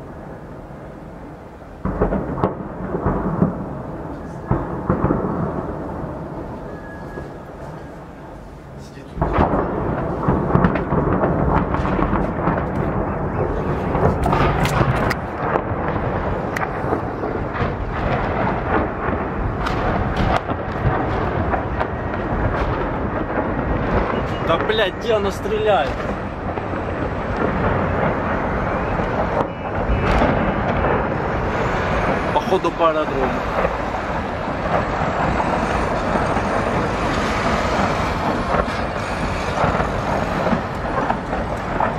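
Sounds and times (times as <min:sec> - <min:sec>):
rocket blasts: 0:01.8 - 0:41.9
rocket launcher rumble: 0:09.2 - 0:41.9.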